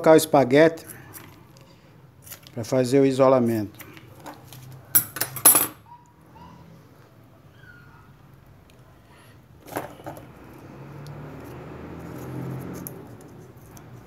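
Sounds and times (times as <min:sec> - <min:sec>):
handling wires and plastic sleeving: 0:00.8 - 0:02.8.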